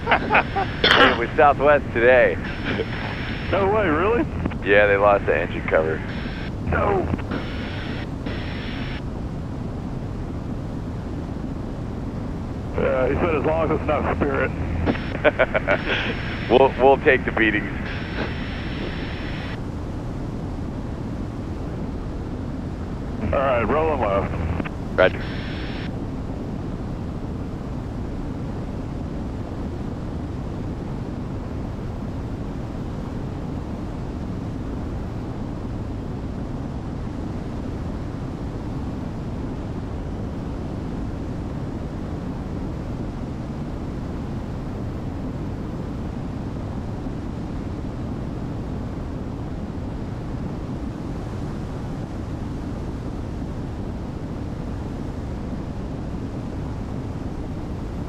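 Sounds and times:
airflow: 0:00.0 - 0:09.0, 0:12.7 - 0:19.6, 0:23.1 - 0:25.9
aircraft engines droning in cabin: 0:00.0 - 0:58.0.

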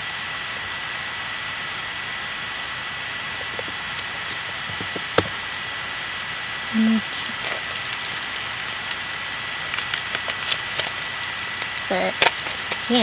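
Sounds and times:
recording hiss with high whine: 0:00.0 - 0:13.0
closed-mouth hum: 0:00.4 - 0:13.0.

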